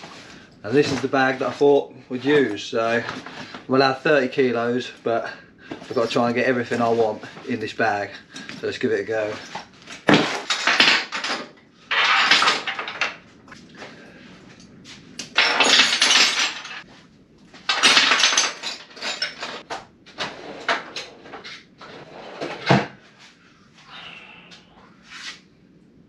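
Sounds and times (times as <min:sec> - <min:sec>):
metal tools clattering: 0:05.7 - 0:08.6, 0:09.2 - 0:13.2, 0:15.2 - 0:16.9, 0:17.7 - 0:19.7.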